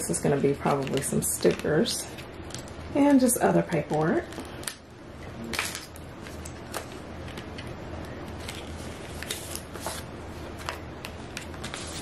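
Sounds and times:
paper rustling and crinkling: 8.3s - 12.0s.

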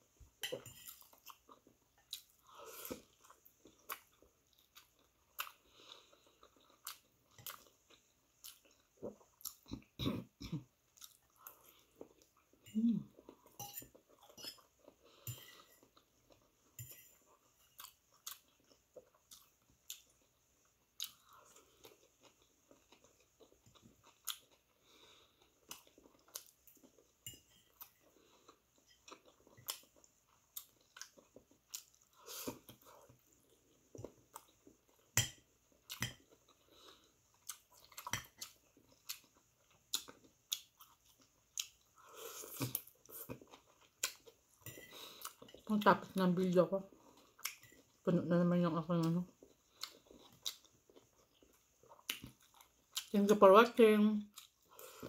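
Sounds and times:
person chewing and biting: 37.3s - 44.4s, 49.4s - 53.1s.

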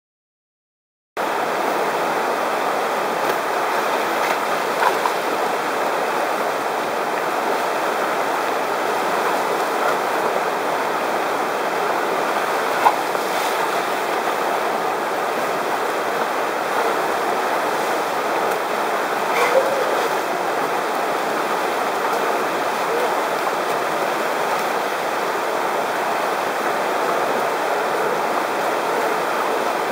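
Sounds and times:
river rapids rushing over rocks: 1.2s - 29.9s.

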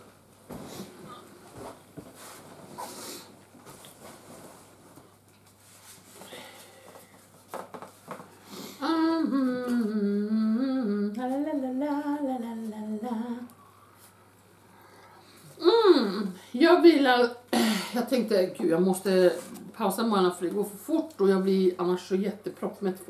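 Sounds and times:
woman humming a tune: 8.8s - 13.5s, 15.6s - 16.4s.

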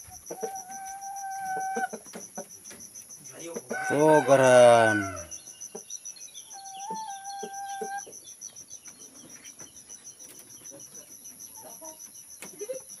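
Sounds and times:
insects trilling: 0.0s - 13.0s
rooster crowing: 3.7s - 5.4s.

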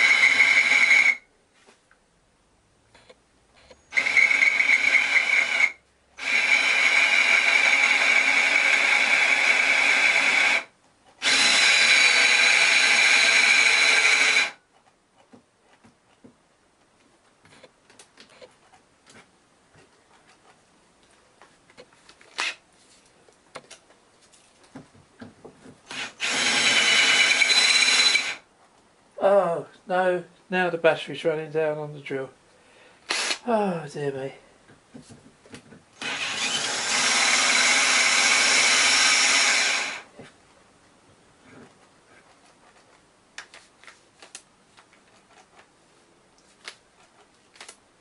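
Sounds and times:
cordless drill whining: 0.0s - 1.2s, 3.8s - 14.6s, 25.9s - 28.4s, 33.1s - 33.4s, 36.0s - 40.1s.

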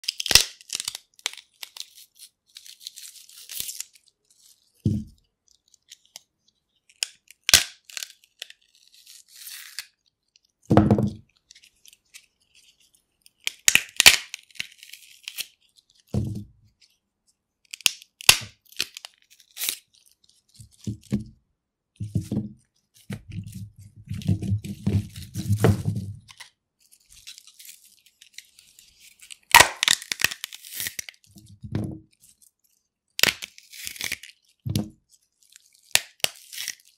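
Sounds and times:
celery tearing and crunching: 0.0s - 4.6s, 7.0s - 10.1s, 11.5s - 16.1s, 17.7s - 20.8s, 26.3s - 31.3s, 33.2s - 34.5s, 35.4s - 36.9s.

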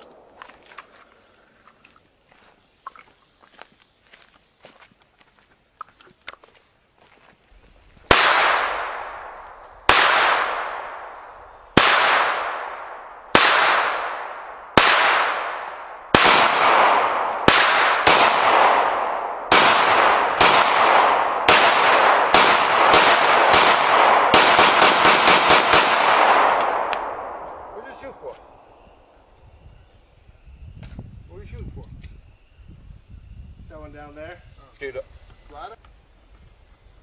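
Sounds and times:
pistol shots ringing: 8.1s - 28.7s.

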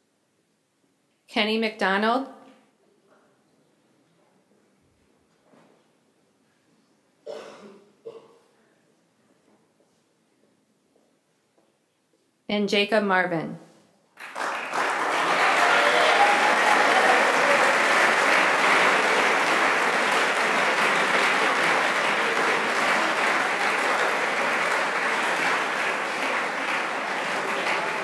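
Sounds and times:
audience applauding: 14.2s - 28.0s.

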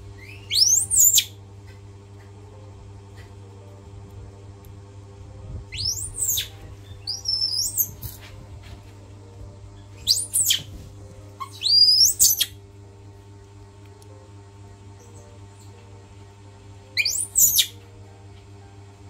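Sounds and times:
steady low hum: 0.0s - 19.0s
high-pitched chirping calls: 0.2s - 1.4s, 5.7s - 8.2s, 10.0s - 10.7s, 11.4s - 12.6s, 17.0s - 17.8s.

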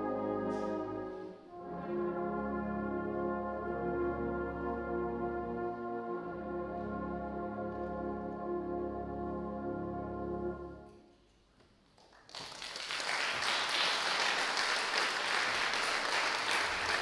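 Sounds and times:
brass band sustained chord: 0.0s - 10.9s
audience applause: 12.0s - 17.0s.

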